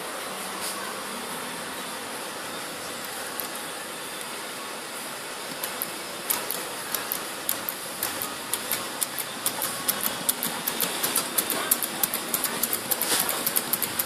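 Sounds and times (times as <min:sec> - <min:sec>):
stirling engine linkage clicking: 0:05.6 - 0:14.0.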